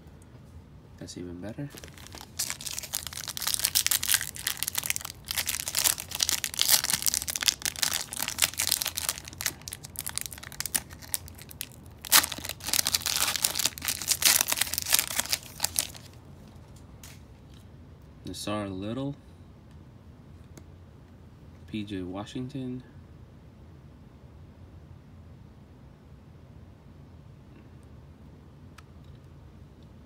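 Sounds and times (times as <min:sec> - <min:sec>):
foil wrapper tearing and crinkling: 0:01.7 - 0:16.2.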